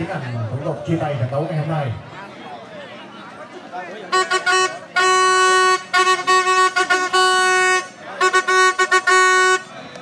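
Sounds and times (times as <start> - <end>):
horn blasts: 4.1 - 10.0.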